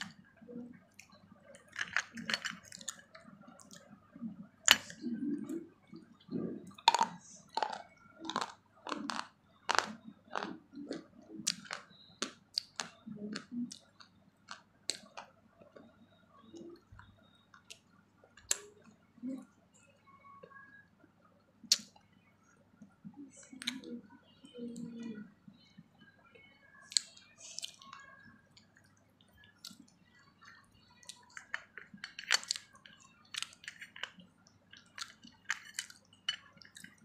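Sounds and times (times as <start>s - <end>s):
person chewing and eating: 0.0s - 3.9s, 6.2s - 15.9s, 26.9s - 37.0s.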